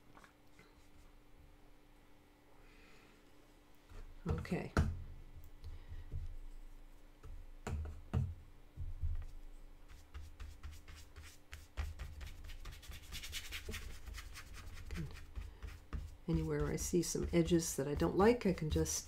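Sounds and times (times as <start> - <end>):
brush scratching on paper: 9.9 - 19.0.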